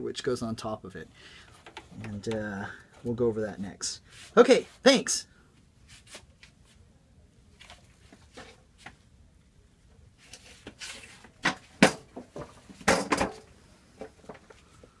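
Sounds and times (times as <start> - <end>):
tools clattering on workbench: 11.4 - 13.5.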